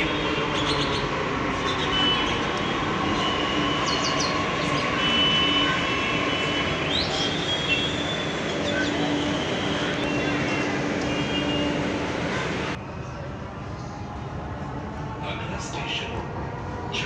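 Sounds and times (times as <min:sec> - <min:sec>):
train brakes squealing: 0:03.0 - 0:11.9.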